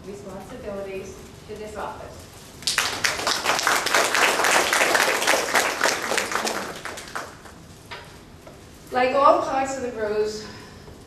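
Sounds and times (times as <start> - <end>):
audience applause: 2.6 - 7.6.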